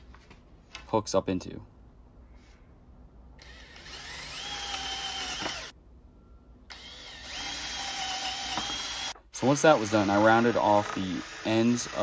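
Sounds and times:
cordless drill boring wood: 3.4 - 5.7, 6.7 - 12.0.

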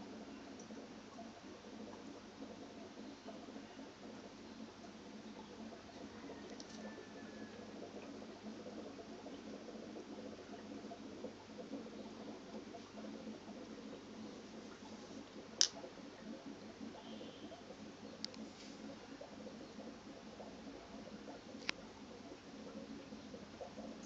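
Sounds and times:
aquarium filter noise: 0.0 - 24.0
light ticks: 18.2 - 18.5.

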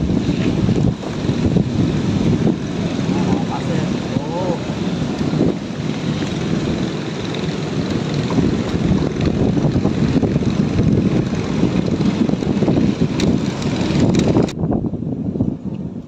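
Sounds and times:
light wind noise: 0.0 - 16.0
wind buffeting microphone: 0.0 - 16.0.

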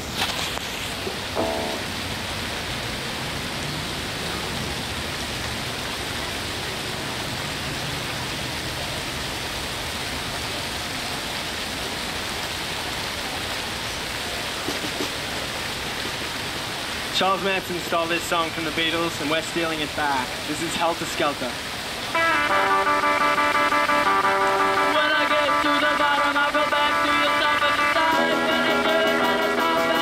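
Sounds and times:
steady hiss: 0.0 - 2.4, 12.0 - 30.0
electric guitar notes: 1.4 - 2.1, 22.1 - 30.0.

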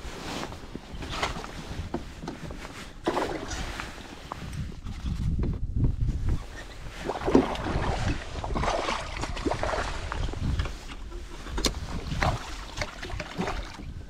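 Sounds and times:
wind on the microphone: 0.0 - 14.0
fish thrashing and water splashing: 3.0 - 4.0, 7.0 - 14.0.

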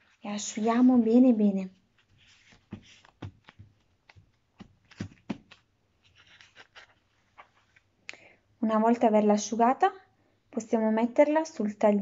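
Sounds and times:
paper towel rustling and crinkling: 0.0 - 7.9.

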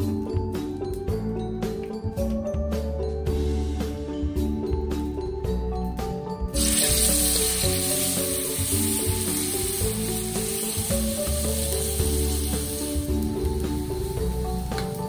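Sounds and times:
background music: 0.0 - 15.0
spice paste sizzling in hot oil: 6.5 - 15.0.

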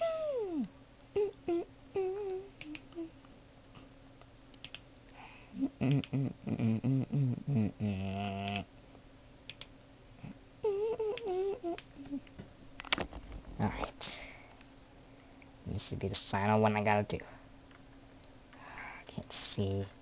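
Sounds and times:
person humming: 0.0 - 3.2, 5.3 - 8.7, 10.2 - 12.3.

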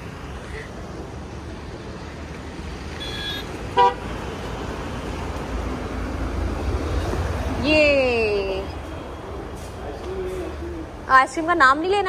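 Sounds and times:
road traffic noise: 0.0 - 12.0
loud vehicle horn toot: 3.0 - 4.1.

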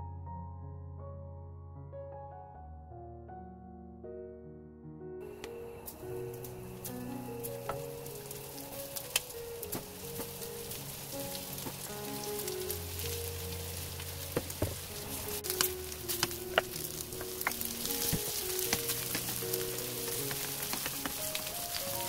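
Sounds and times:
soft background music: 0.0 - 22.0
meat sizzling in hot oil: 5.8 - 22.0.

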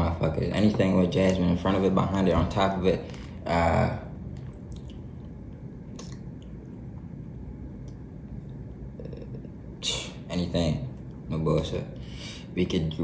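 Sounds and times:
steady low hum: 0.0 - 13.0
person chewing food: 4.3 - 5.3
mouth clicks: 5.9 - 6.3.

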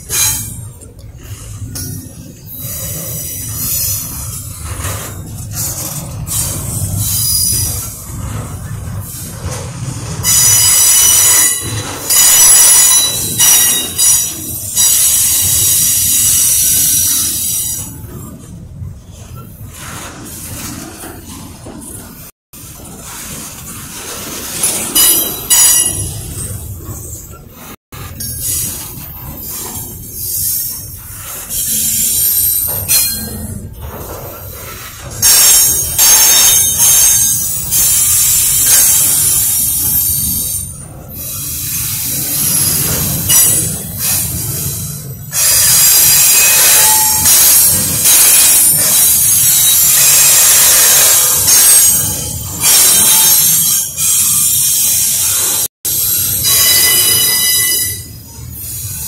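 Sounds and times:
freight cars rumbling: 0.0 - 53.1
steel wheels squealing: 1.7 - 9.3, 10.2 - 18.1, 28.1 - 59.0.

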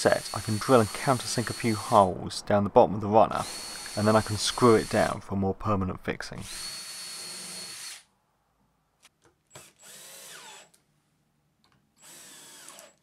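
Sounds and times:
cordless drill running: 0.2 - 2.1, 3.4 - 5.1, 6.5 - 8.1, 9.5 - 10.7, 12.0 - 13.0.

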